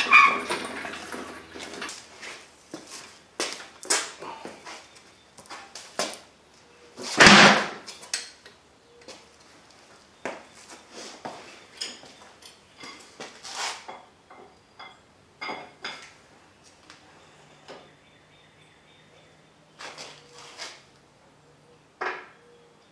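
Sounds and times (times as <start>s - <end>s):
knocks and metallic clanks: 0.0s - 2.0s
tire thumping on concrete floor: 7.0s - 7.9s.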